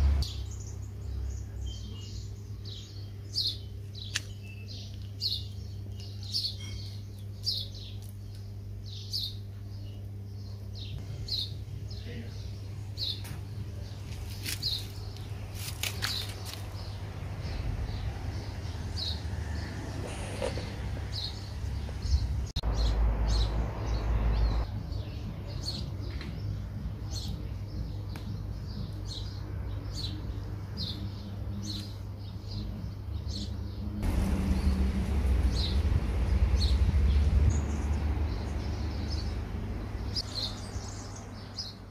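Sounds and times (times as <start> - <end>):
low rumble: 34.0 - 40.2.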